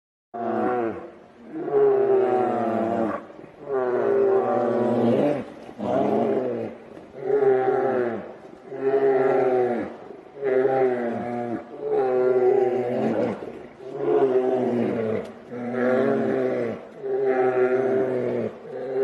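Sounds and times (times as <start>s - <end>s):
bears roaring: 0.4s - 19.0s.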